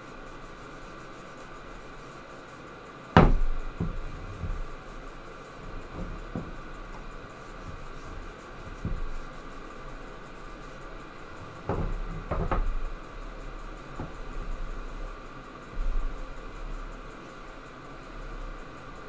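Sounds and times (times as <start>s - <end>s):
steady low hum: 0.0s - 19.0s
cutting board knocking on wood: 3.2s - 4.7s, 5.6s - 9.3s, 11.4s - 13.0s.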